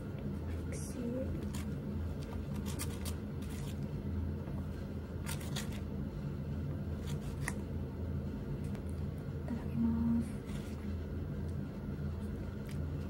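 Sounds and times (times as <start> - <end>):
steady low hum: 0.0 - 13.0
objects rustling and scraping: 1.4 - 3.9.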